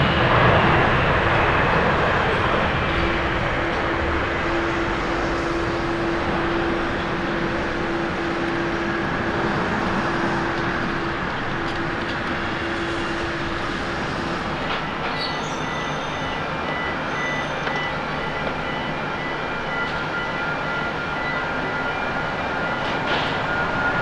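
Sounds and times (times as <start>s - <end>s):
jet engine high whine: 0.0s - 24.0s
jet engines roaring at takeoff: 0.0s - 24.0s.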